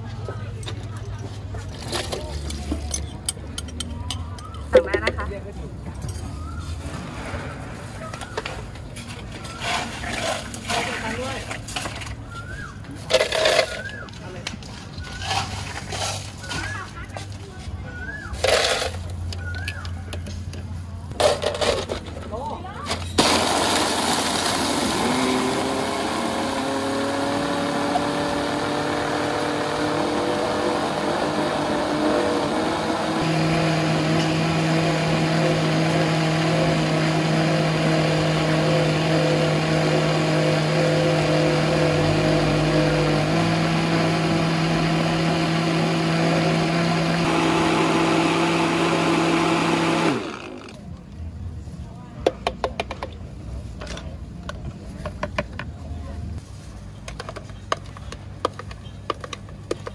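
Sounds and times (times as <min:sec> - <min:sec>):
blender crushing ice: 0:13.1 - 0:14.1, 0:23.2 - 0:50.8.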